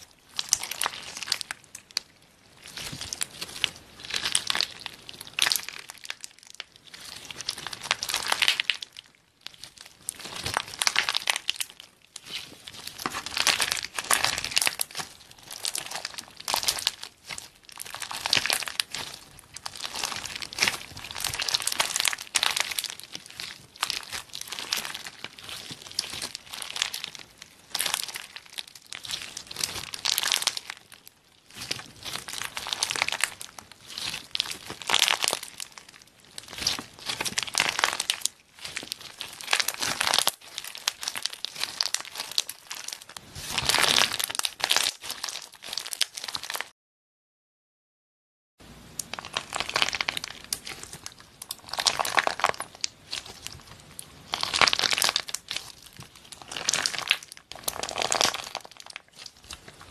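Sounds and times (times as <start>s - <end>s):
slime with beads crackling: 0.0s - 46.7s, 48.8s - 59.9s.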